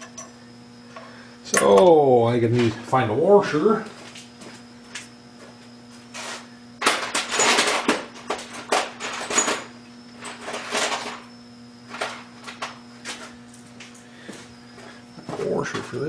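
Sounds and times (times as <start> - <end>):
metal hardware parts clattering: 6.8 - 9.7.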